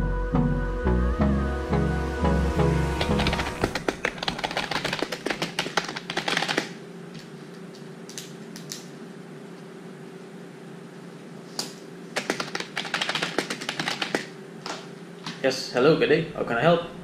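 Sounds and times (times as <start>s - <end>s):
steady low hum: 0.0s - 17.0s
fast typing on a keyboard: 3.0s - 6.8s, 12.2s - 14.3s.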